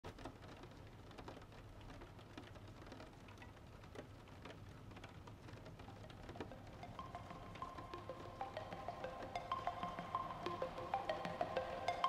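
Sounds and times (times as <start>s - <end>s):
rain pattering on a car: 0.0s - 12.0s
low steady hum: 5.8s - 12.0s.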